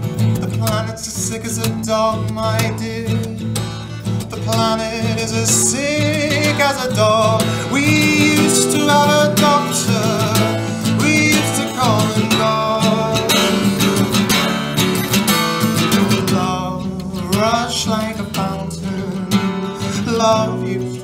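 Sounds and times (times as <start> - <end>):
acoustic guitar strumming: 0.0 - 21.0
man singing wavering notes: 4.2 - 14.4.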